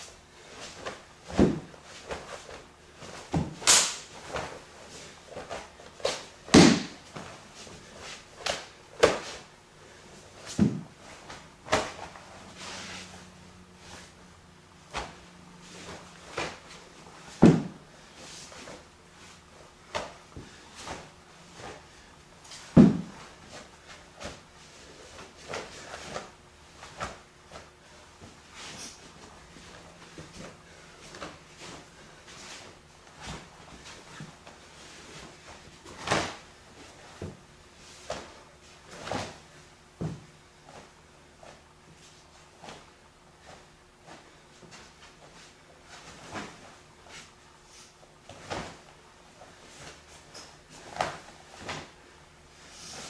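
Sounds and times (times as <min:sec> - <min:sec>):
faint steady hum: 0:00.0 - 0:53.0
sharp slaps and thuds of strikes: 0:03.4 - 0:04.1, 0:06.5 - 0:07.0
hand slaps and smacks: 0:03.5 - 0:04.1.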